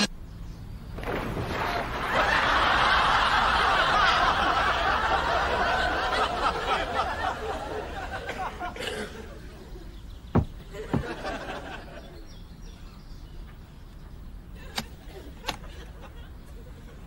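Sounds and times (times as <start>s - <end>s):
sharp knocks: 10.3s - 11.2s.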